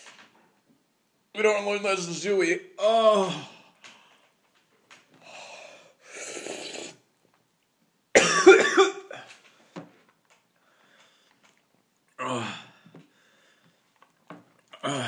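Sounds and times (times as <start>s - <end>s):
man coughing: 8.2s - 9.3s.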